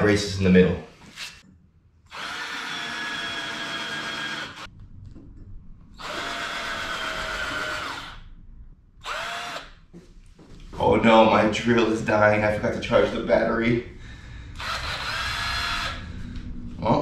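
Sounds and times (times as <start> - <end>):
cordless drill motor whining: 2.1 - 4.7, 6.0 - 8.2, 9.0 - 9.8, 14.6 - 16.0.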